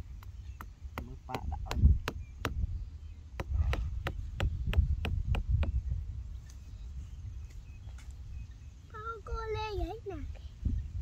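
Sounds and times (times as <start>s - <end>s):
knife chopping wood: 0.1s - 2.6s, 3.3s - 5.8s.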